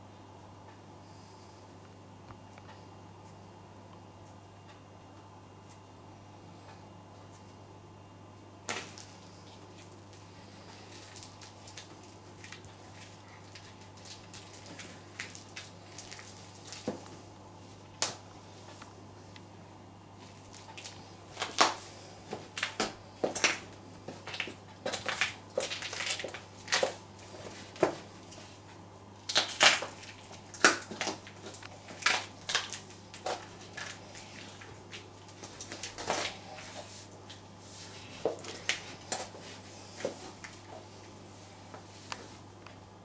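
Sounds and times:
heels crunching and squelching food: 8.7 - 17.2, 20.2 - 28.6, 29.3 - 37.4.

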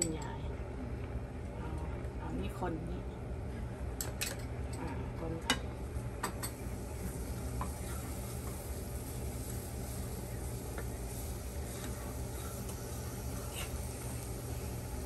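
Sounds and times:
steady low hum: 0.0 - 15.0
garlic sizzling in frying pan: 5.6 - 15.0.

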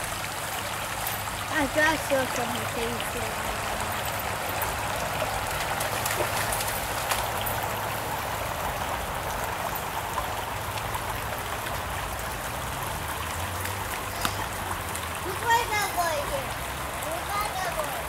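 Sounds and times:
creek babbling over stones: 0.0 - 18.0.

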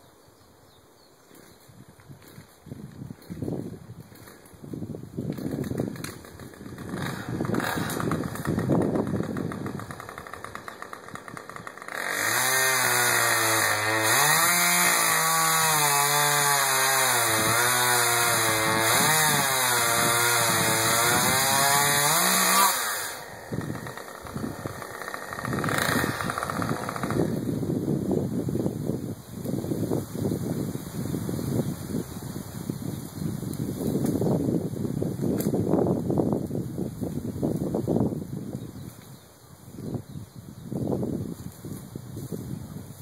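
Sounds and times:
chainsaw running: 5.2 - 27.8.

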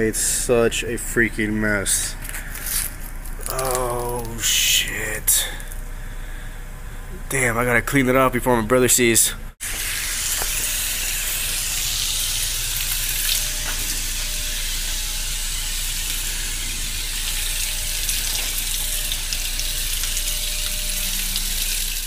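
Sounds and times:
hose spraying water on car: 9.6 - 22.0.

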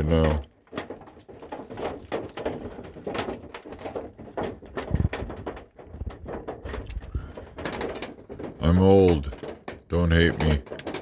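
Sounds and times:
hailstones striking vehicle roof: 0.0 - 11.0.

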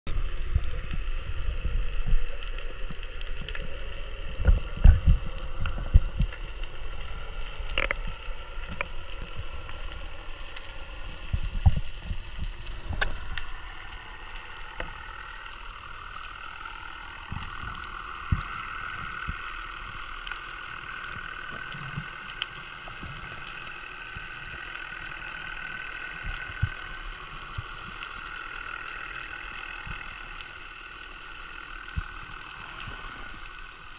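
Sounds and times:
underwater hum with faint whine: 0.1 - 33.9
underwater rushing water: 0.1 - 33.9.

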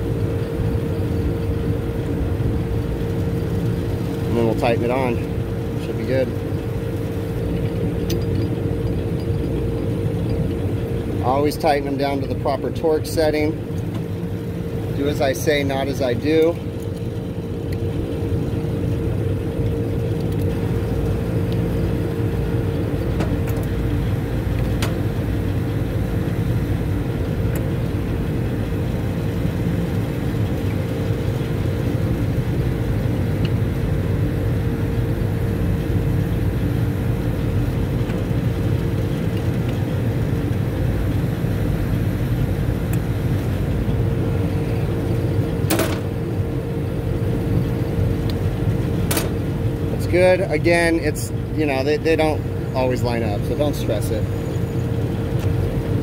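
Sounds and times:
refrigeration equipment droning: 0.0 - 56.0.

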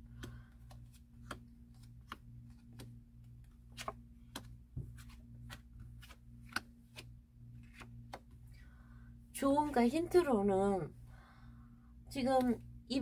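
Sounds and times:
cards dealt on a table: 0.0 - 8.4
low electrical hum: 0.0 - 13.0.

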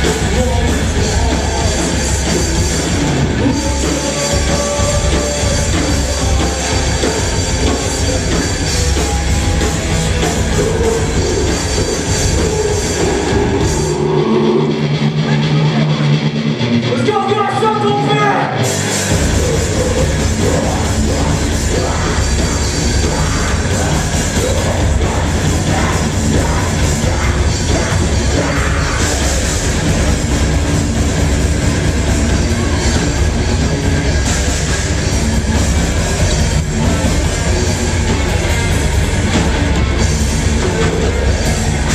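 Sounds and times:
sung vocals: 0.0 - 16.2, 16.9 - 31.2, 32.0 - 41.9
live rock band playing: 0.0 - 41.9.

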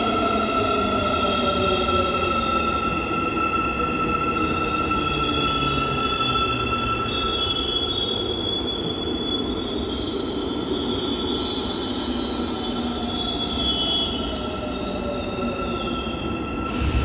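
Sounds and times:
high whining train motor tones: 13.0 - 17.0
train rumble: 16.6 - 17.0.

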